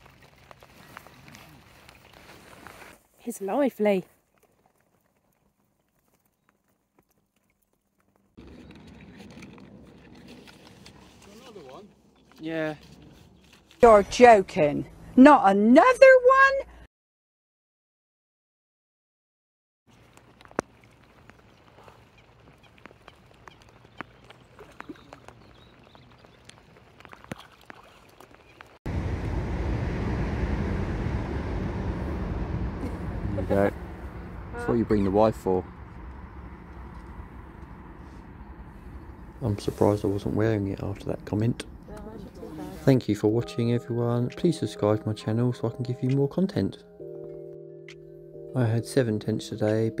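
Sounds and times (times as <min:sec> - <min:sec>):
raindrops pattering on water: 0:00.0 - 0:02.6, 0:19.9 - 0:28.8
outdoor background noise: 0:00.0 - 0:16.8, 0:19.9 - 0:43.6.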